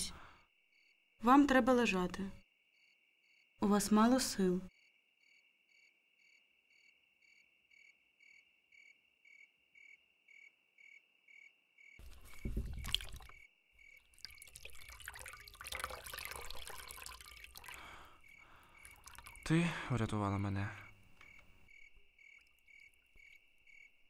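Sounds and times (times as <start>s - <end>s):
cricket chirping: 0.0s - 1.2s, 2.4s - 3.6s, 4.7s - 24.0s
hand splashing into water: 12.0s - 13.4s, 14.2s - 18.0s
water trickling into basin: 12.0s - 20.3s, 21.8s - 24.0s.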